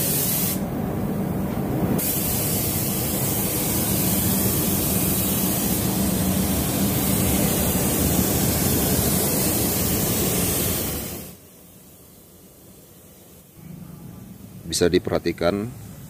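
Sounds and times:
spray gun hissing: 0:00.0 - 0:00.6, 0:02.0 - 0:13.5.

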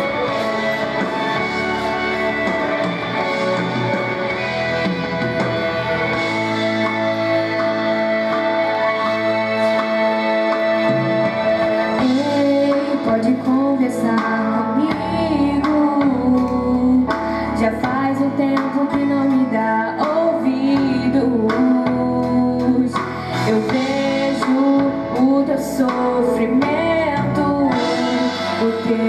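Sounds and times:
instrumental accompaniment: 0:00.0 - 0:29.0
woman singing: 0:11.2 - 0:29.0.

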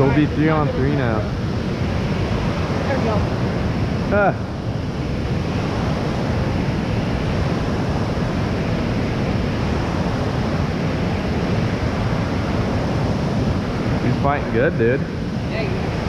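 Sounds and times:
fast-flowing water rushing: 0:00.0 - 0:16.0
wind rumbling on microphone: 0:00.0 - 0:16.0.

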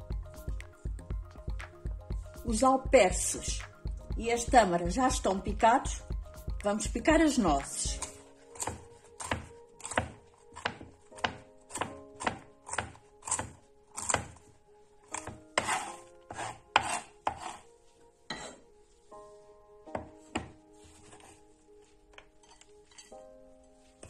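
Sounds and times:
faint background music: 0:00.0 - 0:24.0
knife chopping on wooden board: 0:08.0 - 0:14.4, 0:15.1 - 0:17.6, 0:19.9 - 0:21.2.

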